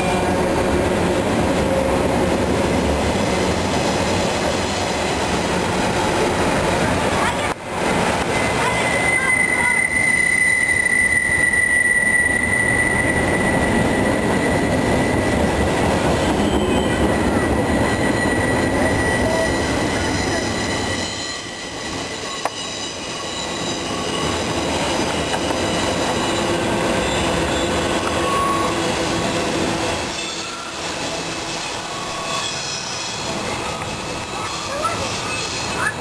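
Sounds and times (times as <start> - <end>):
freight cars rolling on rails: 0.0 - 36.0
high wheel squeal: 8.4 - 15.4, 16.1 - 36.0.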